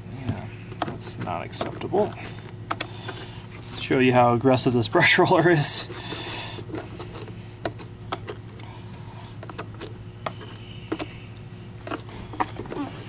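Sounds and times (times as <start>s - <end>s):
steady low hum: 0.0s - 13.0s
brush bristles clicking and rubbing: 0.7s - 8.6s.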